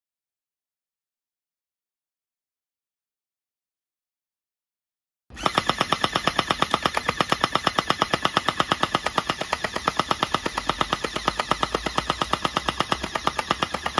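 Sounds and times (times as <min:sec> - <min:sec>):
gel blaster rapid fire: 0:05.3 - 0:13.9.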